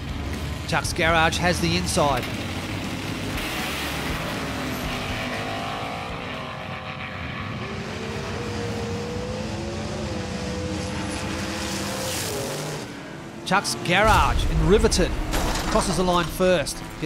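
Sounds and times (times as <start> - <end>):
race car engine at high revs: 0.0 - 17.0.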